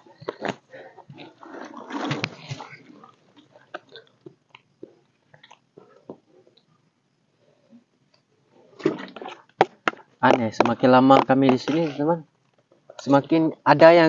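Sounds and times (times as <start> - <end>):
clatter and rustle: 0.0 - 6.6
chewing: 0.1 - 6.7.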